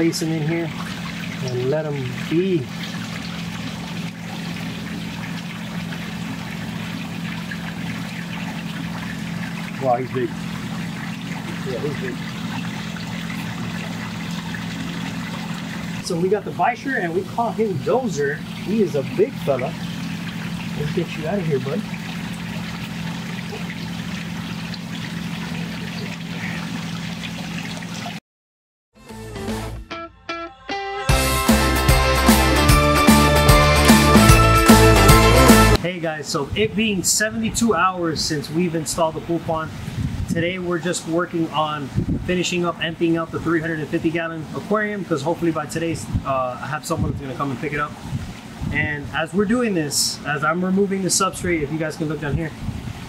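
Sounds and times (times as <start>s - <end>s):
low steady hum: 0.0s - 28.1s
water pouring into a pond: 0.0s - 28.2s, 35.7s - 53.0s
music: 29.0s - 35.8s.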